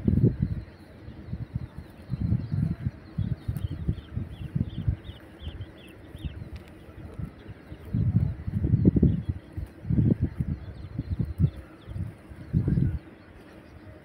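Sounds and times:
bird chirping: 0.0 - 14.0.

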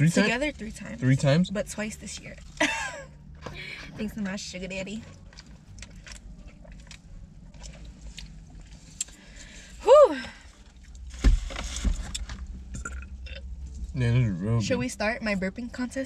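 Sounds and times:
food and foam boxes rustling: 10.5 - 12.7.

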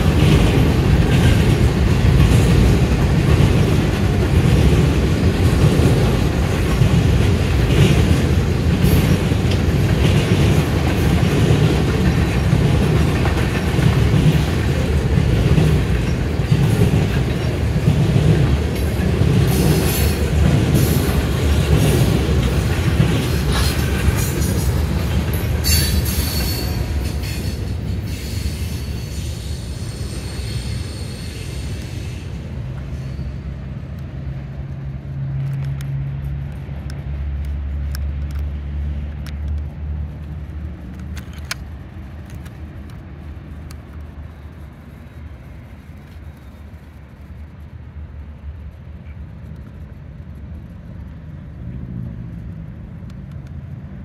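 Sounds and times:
low train rumble: 0.0 - 54.0
train wheels clattering on rails: 0.0 - 54.0
high wheel squeal: 25.6 - 33.4.

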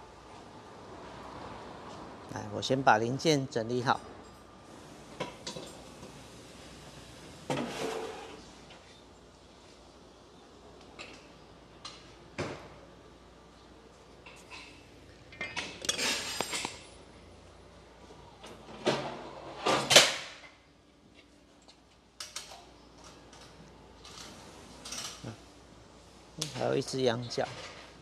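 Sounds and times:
metal tools clinking and clattering: 14.4 - 16.9.

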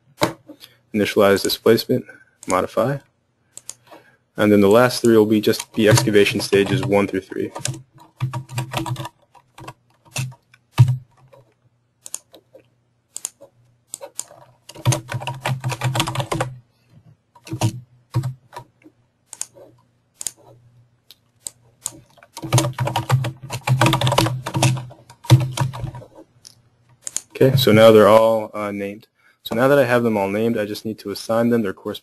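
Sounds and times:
typing on computer keyboard: 5.5 - 12.6, 13.2 - 16.6, 17.4 - 18.7, 21.5 - 26.2.

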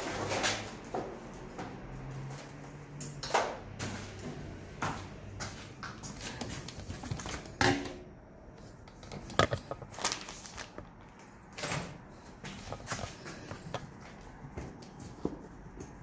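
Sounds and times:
knocks of things being handled: 8.9 - 10.0, 11.6 - 16.0.

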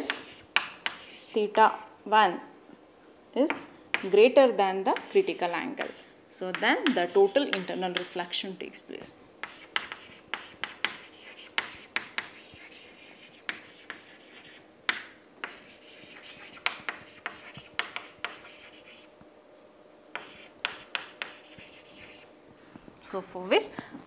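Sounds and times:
chalk scratching strokes: 0.0 - 1.4, 9.4 - 14.6, 15.4 - 19.1, 20.2 - 22.3
chalk tapping on chalkboard: 0.0 - 1.4, 5.8 - 8.2, 9.4 - 19.1, 20.1 - 22.3.

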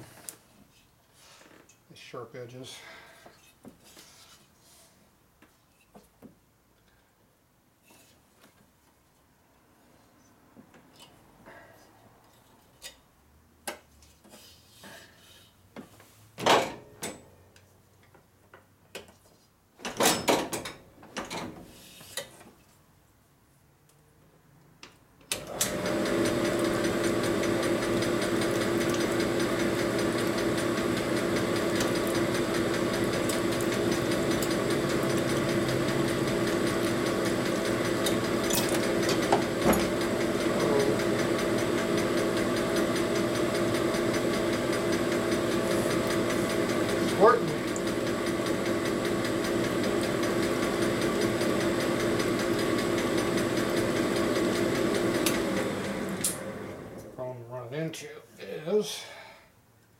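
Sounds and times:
honing machine humming: 25.5 - 57.0.

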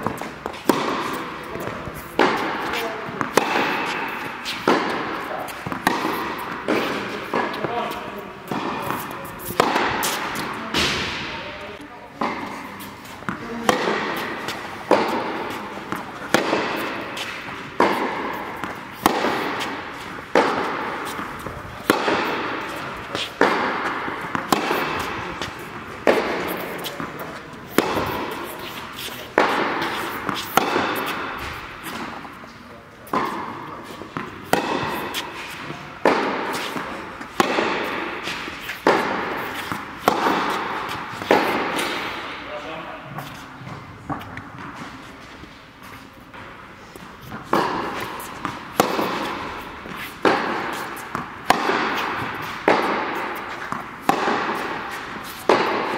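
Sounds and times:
tennis ball pops echoing: 47.3 - 55.9.

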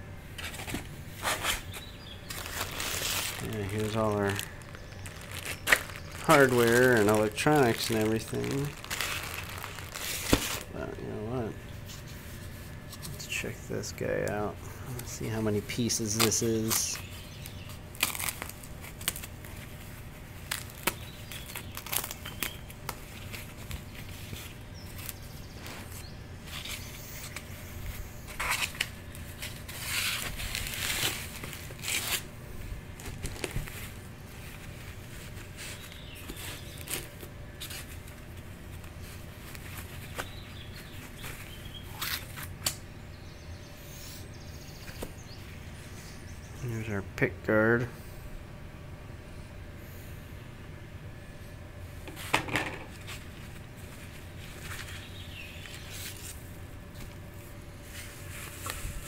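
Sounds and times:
plastic bag crinkling: 1.2 - 11.3, 15.0 - 27.5, 28.2 - 32.3, 32.9 - 42.5.

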